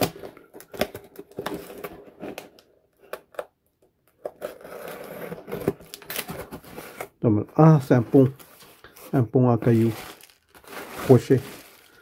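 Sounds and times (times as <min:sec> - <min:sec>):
cardboard rustling and crackling: 0:05.1 - 0:12.0.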